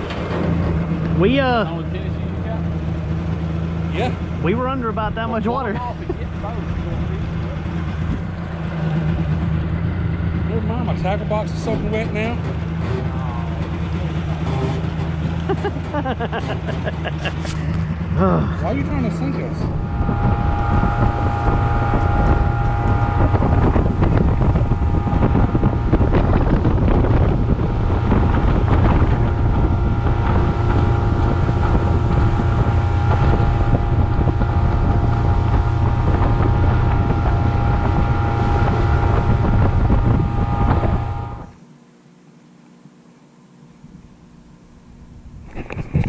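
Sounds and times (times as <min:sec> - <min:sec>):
motorboat engine running: 0:00.0 - 0:46.0
wind buffeting microphone: 0:17.4 - 0:41.6, 0:45.1 - 0:46.0.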